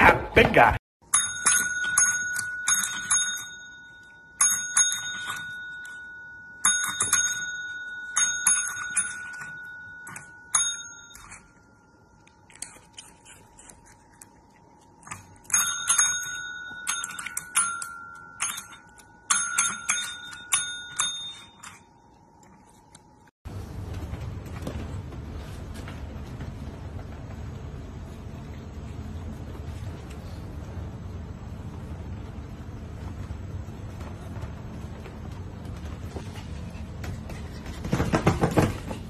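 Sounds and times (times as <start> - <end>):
desk bells dinging: 1.0 - 12.0, 15.3 - 22.3.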